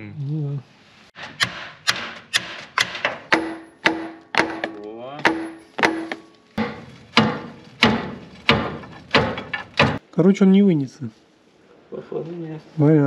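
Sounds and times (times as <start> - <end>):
hammer striking steel: 1.2 - 10.0.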